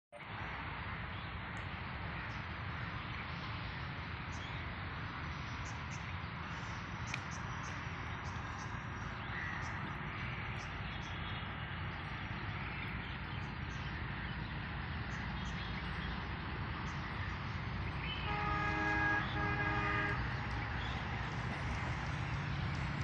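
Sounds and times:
train horn blasts: 0:18.2 - 0:21.2.

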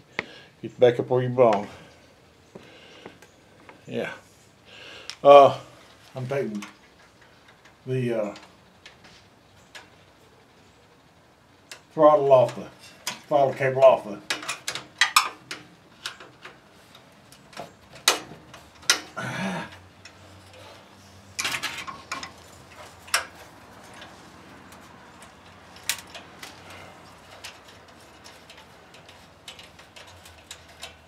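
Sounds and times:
light clicks and metallic rattles: 0:05.8 - 0:10.1, 0:11.6 - 0:31.0.

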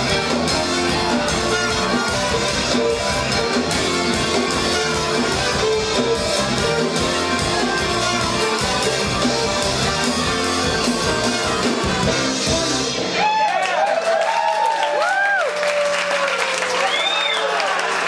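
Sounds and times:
live rock band playing: 0:00.0 - 0:13.5.

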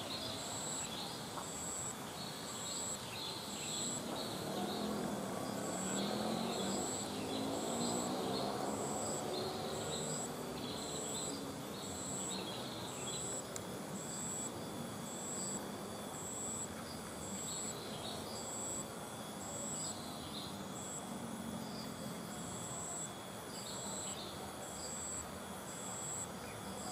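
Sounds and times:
high insect chirping pulses: 0:00.0 - 0:26.9.

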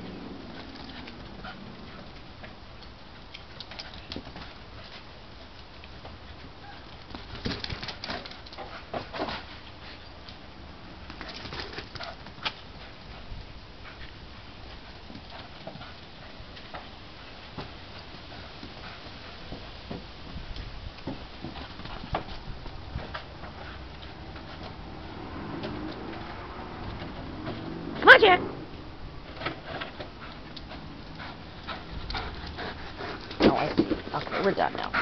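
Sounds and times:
paw thuds on dirt: 0:33.2 - 0:34.4.

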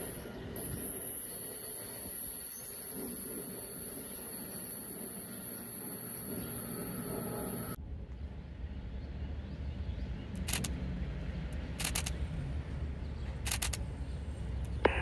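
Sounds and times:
sharp clicks: 0:10.4 - 0:10.8, 0:11.8 - 0:12.2, 0:13.4 - 0:13.8.

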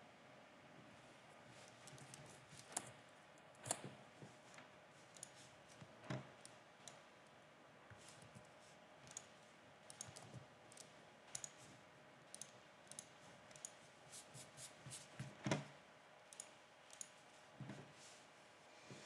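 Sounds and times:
mouse and keyboard clicks: 0:09.0 - 0:09.3, 0:09.9 - 0:11.6, 0:12.3 - 0:13.8, 0:16.3 - 0:17.2.

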